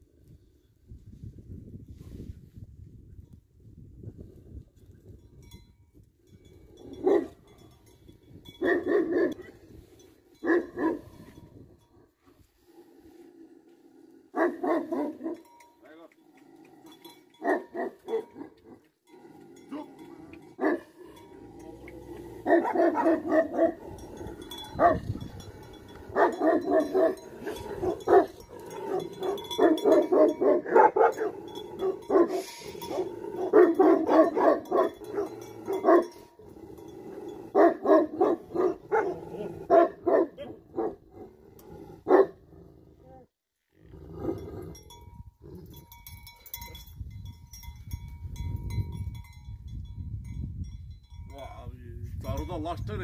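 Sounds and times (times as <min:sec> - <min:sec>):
dog barking rapidly: 0:14.4 - 0:15.4, 0:22.5 - 0:23.8, 0:26.1 - 0:27.2, 0:37.6 - 0:41.0.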